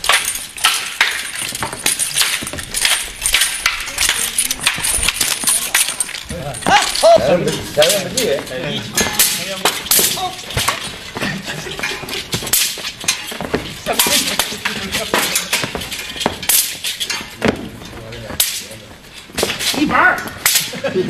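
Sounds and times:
wooden staffs clacking: 0:00.0 - 0:21.0.

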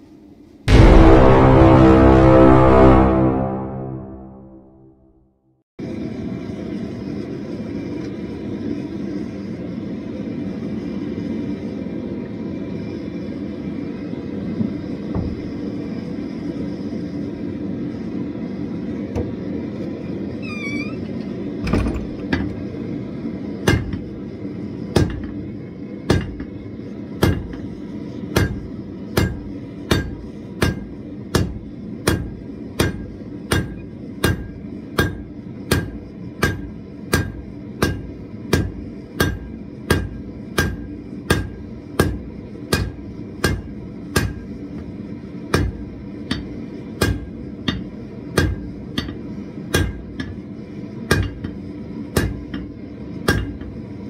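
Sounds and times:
hammer striking steel on anvil: 0:23.6 - 0:24.1, 0:24.9 - 0:25.4, 0:26.1 - 0:26.6, 0:27.2 - 0:44.6, 0:45.5 - 0:50.4, 0:51.1 - 0:53.8.

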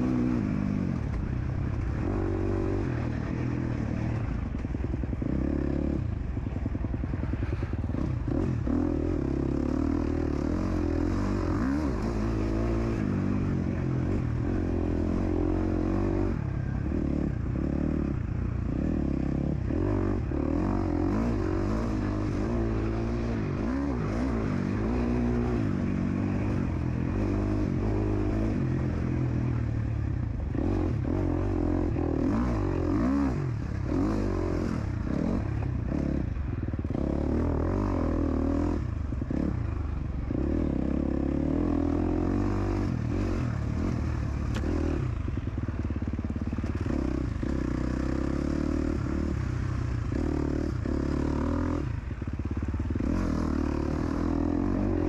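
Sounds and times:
motocross engine revving: 0:52.6 - 0:55.0.

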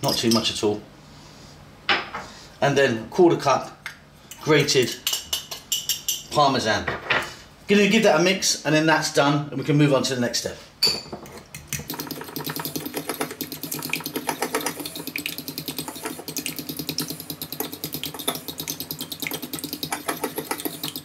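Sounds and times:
wet stirring: 0:11.4 - 0:21.0.

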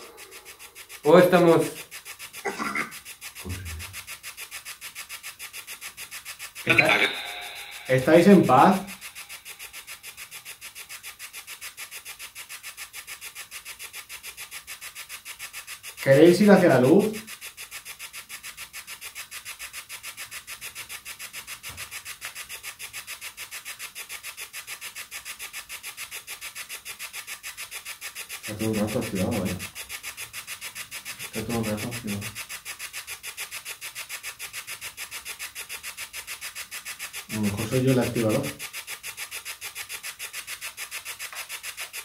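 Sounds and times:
pulsing radio static hiss: 0:00.0 - 0:04.4, 0:06.5 - 0:10.5, 0:37.3 - 0:38.6
voice-like snatches: 0:02.5 - 0:04.0.

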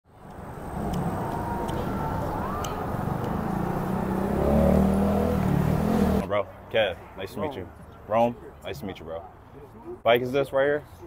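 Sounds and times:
street traffic rumble: 0:00.1 - 0:11.0.

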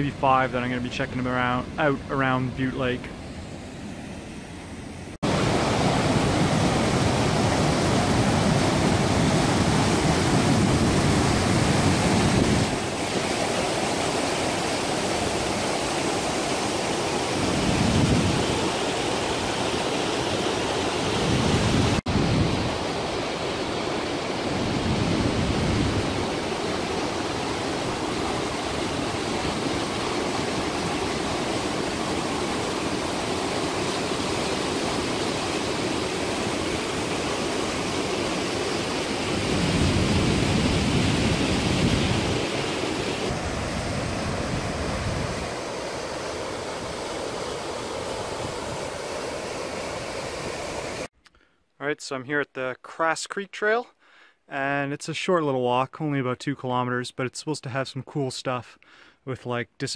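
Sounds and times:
wind gusts on microphone: 0:05.2 - 0:15.9, 0:17.2 - 0:19.6, 0:21.0 - 0:51.1
waterfall rushing: 0:05.2 - 0:51.1.

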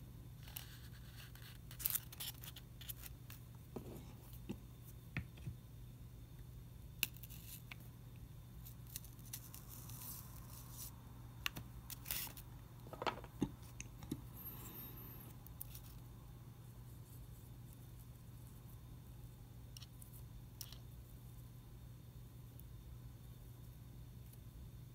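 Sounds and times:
faint steady hum: 0:00.0 - 0:24.9.

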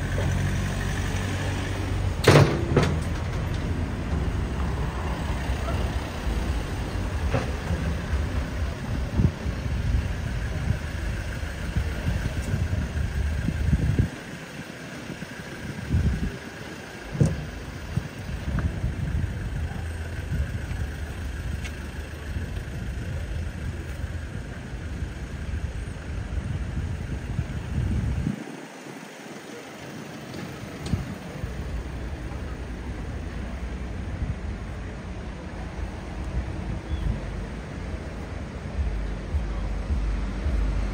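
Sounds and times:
car engines running: 0:00.0 - 0:40.9
fluctuating low rumble: 0:31.0 - 0:40.9.

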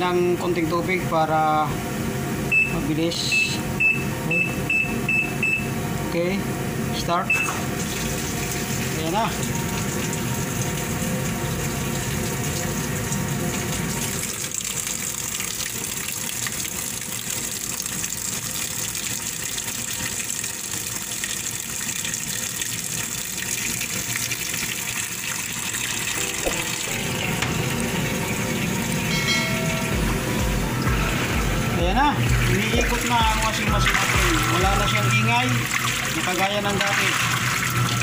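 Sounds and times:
water pouring into washing machine: 0:07.5 - 0:29.1, 0:31.0 - 0:38.0.

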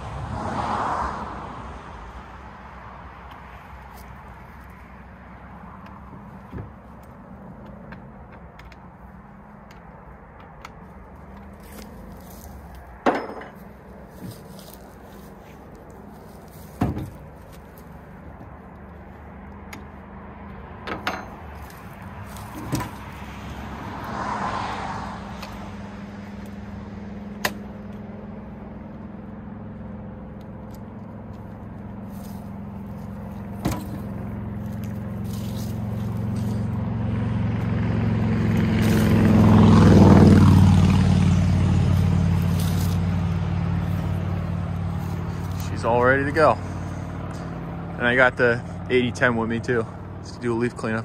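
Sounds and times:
vehicle engine droning: 0:00.0 - 0:51.0
tools clunking in truck bed: 0:13.0 - 0:13.7, 0:16.8 - 0:17.2, 0:20.8 - 0:21.6, 0:22.5 - 0:23.0, 0:33.6 - 0:34.1.

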